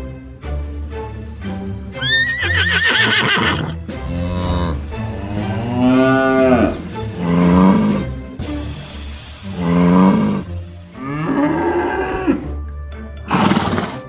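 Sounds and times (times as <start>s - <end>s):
background music: 0.0s - 14.0s
horse whinny: 2.0s - 4.9s, 13.3s - 14.0s
cow mooing: 3.4s - 8.1s, 9.6s - 12.6s.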